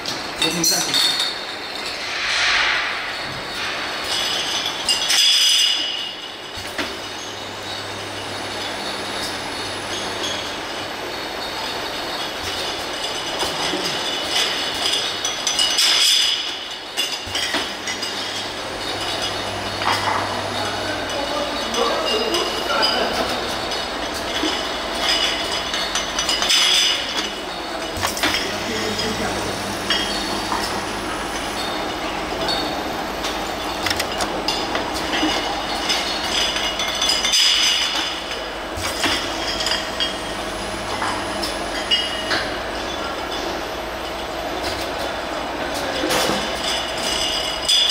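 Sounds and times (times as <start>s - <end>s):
glass bottles clinking: 0.0s - 2.1s, 3.2s - 47.9s
filling machine running: 1.5s - 47.9s.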